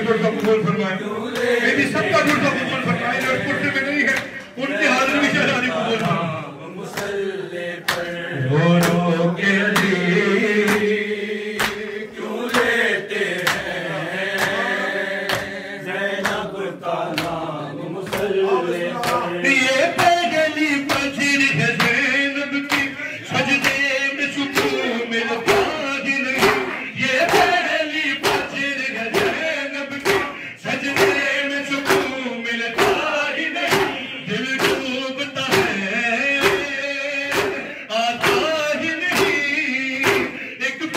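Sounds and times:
man singing a lament: 0.0s - 40.9s.

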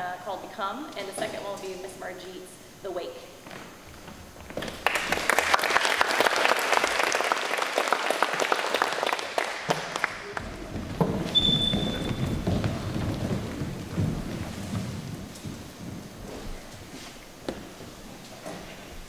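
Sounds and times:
audience applauding: 4.6s - 14.4s
dancers' feet thudding on floor: 9.4s - 19.0s.

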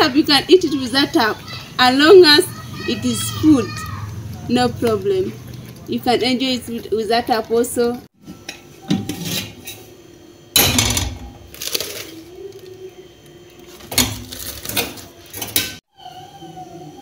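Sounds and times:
metal pots clanking and scraping: 8.2s - 9.9s.

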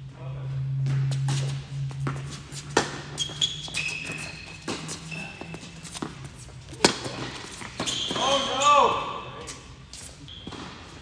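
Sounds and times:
sneakers squeaking on court: 0.9s - 11.0s
ball bouncing: 1.9s - 8.4s
rackets striking tennis ball: 2.0s - 8.7s.

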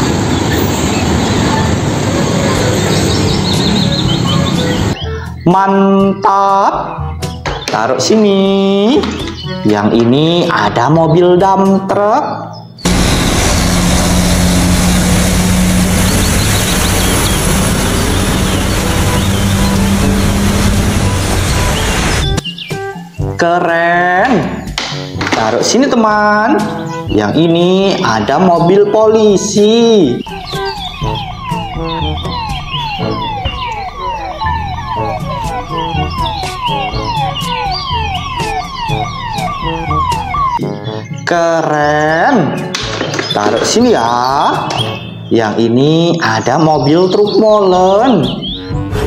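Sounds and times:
road noise: 0.0s - 5.4s, 12.8s - 23.2s, 26.6s - 40.7s
vehicle engine hum: 12.9s - 22.4s, 30.2s - 40.6s
police siren wailing: 12.9s - 22.9s, 30.0s - 40.9s
rhythmic low beat: 30.2s - 40.7s.

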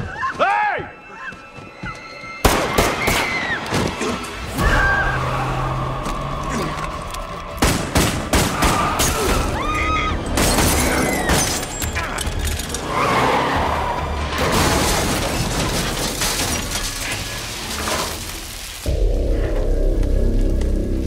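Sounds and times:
tense film score: 0.0s - 21.0s
glass shattering: 10.2s - 12.8s, 14.4s - 18.8s.

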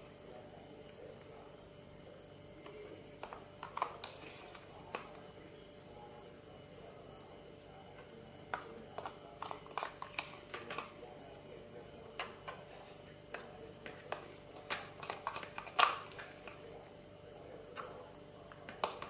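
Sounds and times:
plastic spoon scraping containers: 8.5s - 10.9s, 12.2s - 16.6s.

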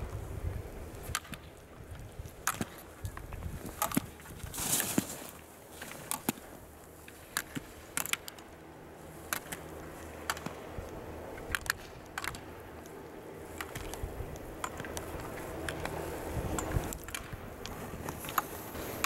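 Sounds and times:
skis scraping over snow: 1.9s - 8.0s, 13.4s - 19.0s.

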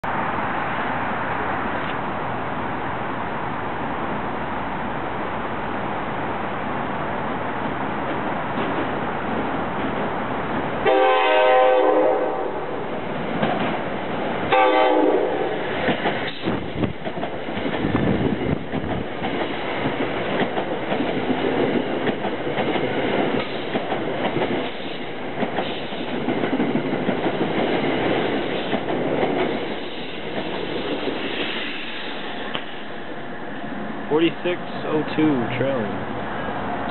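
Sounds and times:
train coaches rushing past: 0.1s - 36.9s
train horn blasts: 10.8s - 12.7s, 14.5s - 15.6s
wheels clicking over rail joints: 15.8s - 31.2s.

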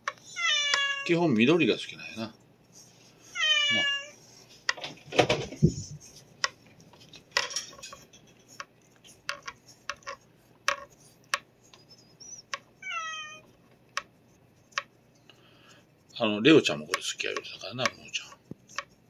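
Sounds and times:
cat meowing: 0.3s - 1.2s, 3.4s - 4.2s, 12.8s - 13.5s
plastic brush scratching fur: 7.8s - 15.1s, 16.0s - 19.0s.

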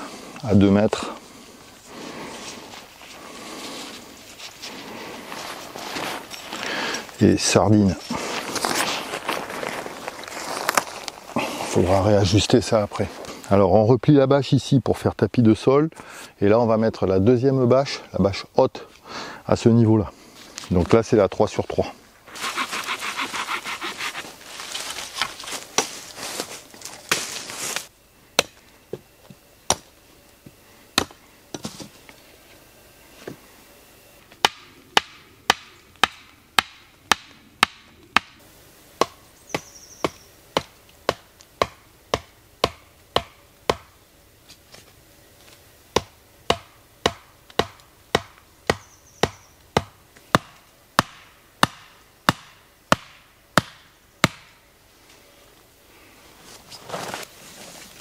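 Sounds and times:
tarp fabric rustling: 8.1s - 11.8s, 56.4s - 58.0s
axe head knocking wooden stake: 31.0s - 31.7s, 34.4s - 38.4s, 40.0s - 43.9s, 46.0s - 54.5s.

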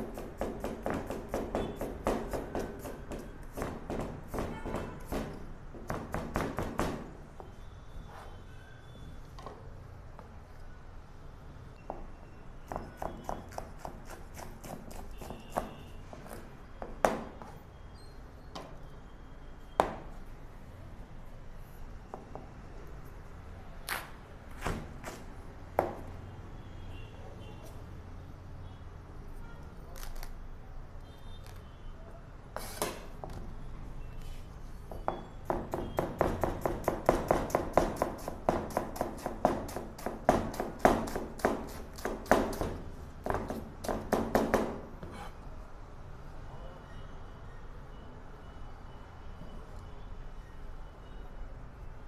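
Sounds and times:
knife chopping on cutting board: 12.7s - 15.8s, 35.5s - 44.7s.

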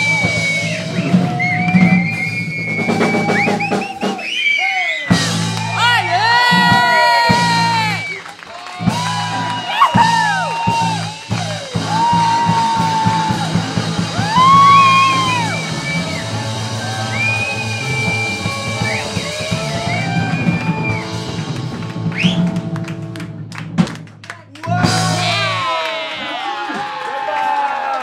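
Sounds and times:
live rock band playing: 5.1s - 24.0s, 24.7s - 25.7s
quick run of drum hits: 5.1s - 25.5s.

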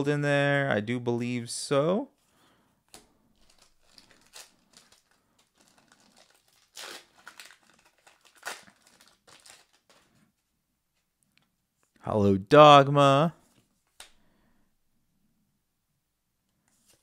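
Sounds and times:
foil pack crinkling and tearing: 2.9s - 10.2s.

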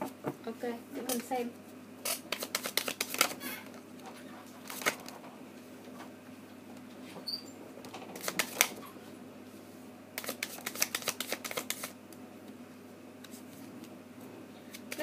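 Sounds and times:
cards flicking in shuffle: 2.0s - 3.8s, 4.6s - 5.1s, 8.2s - 8.8s, 10.2s - 12.0s, 14.7s - 15.0s
cards clicking: 2.1s - 3.4s, 8.2s - 8.8s, 10.2s - 12.0s.

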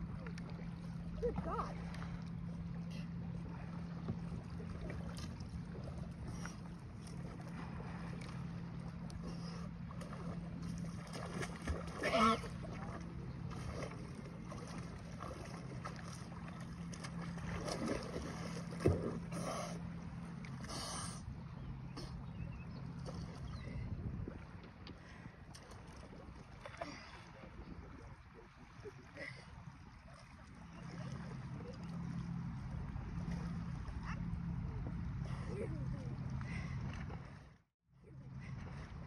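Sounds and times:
small waves: 0.0s - 39.0s
steady low hum: 0.0s - 39.0s.

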